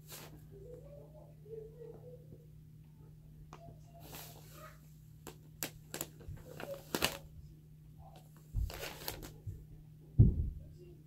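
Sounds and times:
paper rustling: 0:00.0 - 0:00.4, 0:04.0 - 0:07.3, 0:08.1 - 0:09.5.

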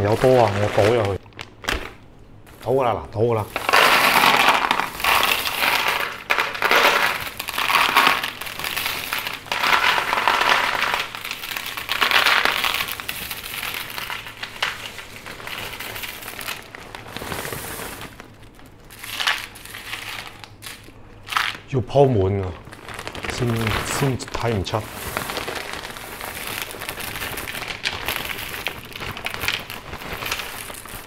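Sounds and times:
hand clattering pebbles: 0:00.0 - 0:01.2, 0:02.5 - 0:21.7, 0:22.3 - 0:31.0
pebbles rattling into a pot: 0:00.0 - 0:01.2, 0:03.4 - 0:21.7, 0:22.4 - 0:31.0
plastic bag crinkling: 0:00.0 - 0:31.0.

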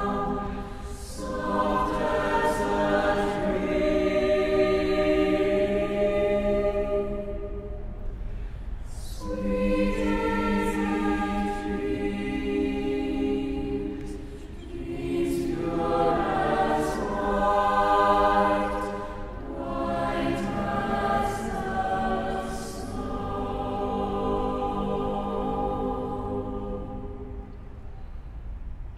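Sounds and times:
choir singing held chords: 0:00.0 - 0:28.1.

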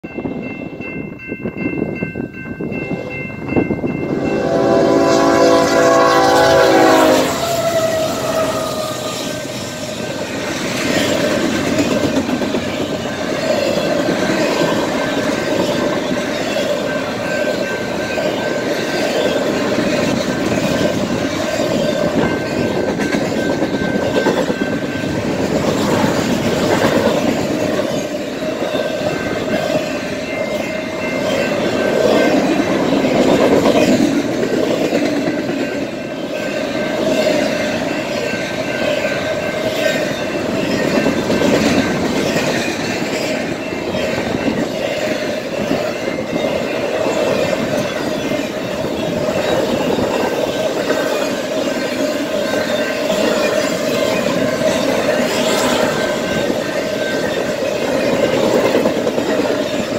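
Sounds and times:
crossing warning bell ringing: 0:00.0 - 0:59.9
train wheels clattering past: 0:03.8 - 0:59.9
locomotive air horn blast: 0:04.1 - 0:09.6.

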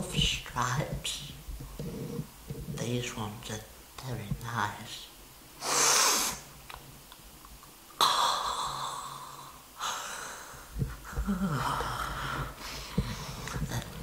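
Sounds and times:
man sniffing through the nose: 0:05.6 - 0:06.5.

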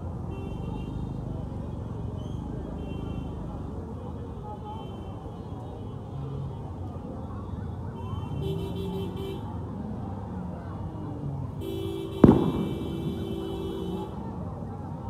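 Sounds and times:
crowd noise: 0:00.0 - 0:15.0
traffic noise: 0:00.0 - 0:15.0
sharp loud bang: 0:12.2 - 0:13.5.

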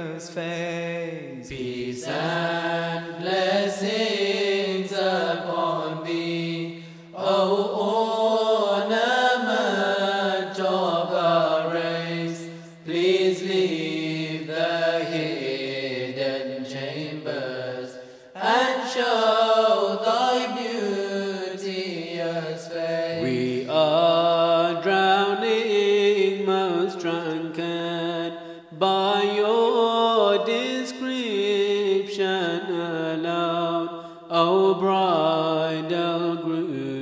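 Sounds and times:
voices singing devotional song: 0:00.0 - 0:37.0.

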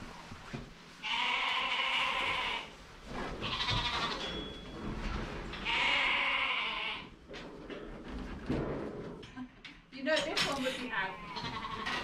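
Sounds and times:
sheep bleating: 0:01.0 - 0:02.7, 0:05.6 - 0:07.1, 0:11.1 - 0:12.0.

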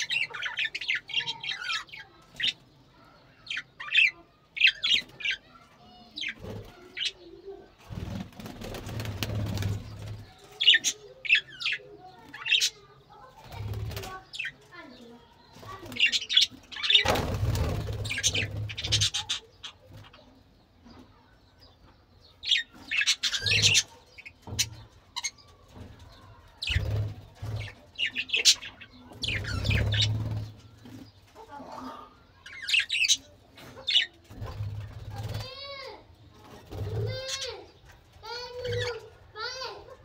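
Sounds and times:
budgerigars chirping: 0:16.0 - 0:20.2, 0:27.6 - 0:30.5.

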